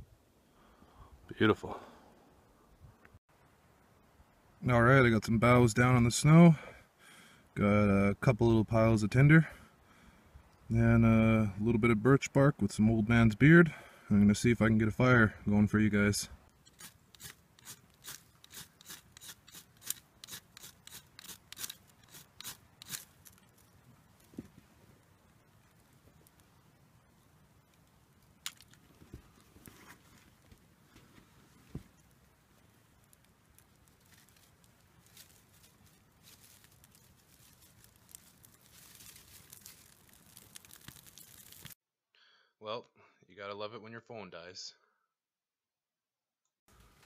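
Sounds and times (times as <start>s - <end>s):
small fire crackling: 16.4s - 41.8s
bark and twigs rustling: 16.5s - 41.8s
knife scraping bark: 16.7s - 23.4s.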